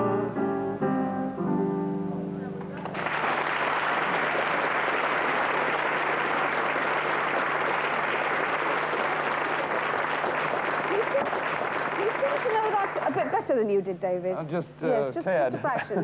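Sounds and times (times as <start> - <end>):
studio audience applauding: 2.7 - 13.5.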